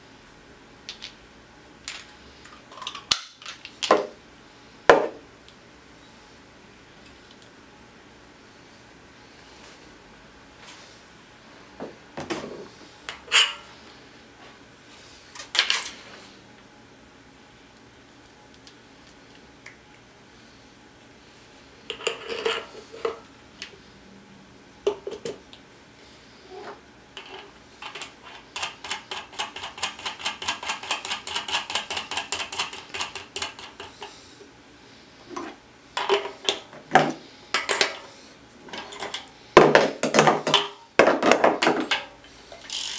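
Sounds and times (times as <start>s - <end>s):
rapid ratcheting clicks: 42.6s - 42.9s.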